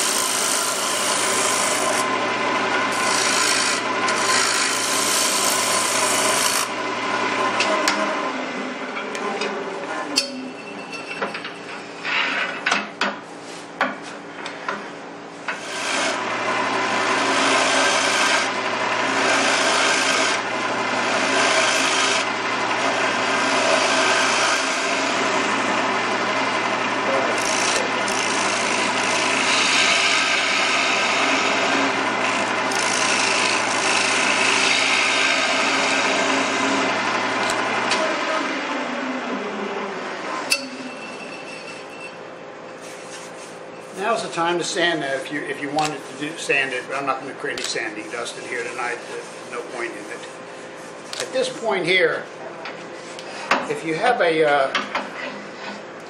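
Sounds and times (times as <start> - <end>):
lathe gouge shearing wood: 0.0 - 8.2, 15.5 - 38.6, 44.0 - 51.7
tool scrapes and clicks: 2.9 - 6.7, 47.6 - 51.6.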